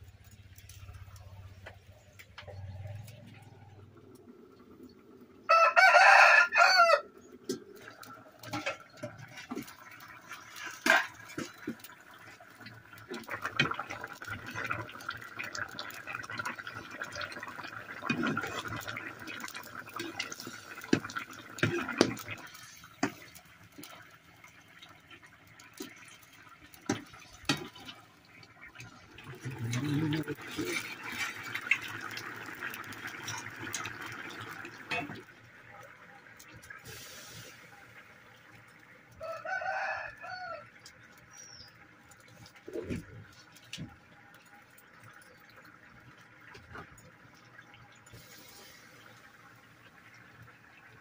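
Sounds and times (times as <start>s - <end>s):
rooster crowing: 5.5s - 7.1s, 39.2s - 40.6s.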